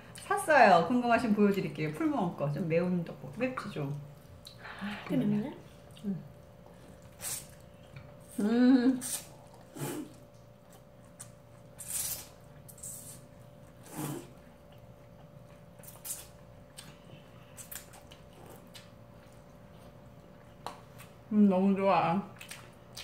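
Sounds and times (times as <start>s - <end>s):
faint steady hum: 0.0s - 23.0s
wet chewing: 9.0s - 21.3s, 22.3s - 23.0s.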